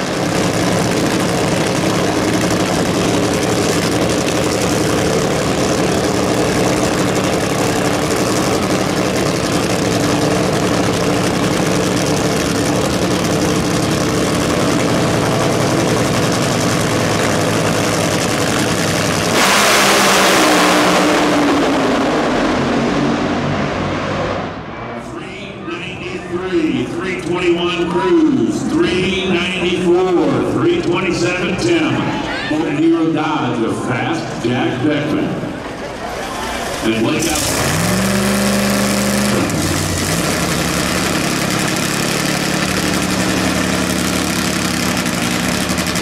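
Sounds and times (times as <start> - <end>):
drag racing engines idling: 0.0 - 46.0
drag cars launching blast: 18.8 - 25.0, 36.5 - 46.0.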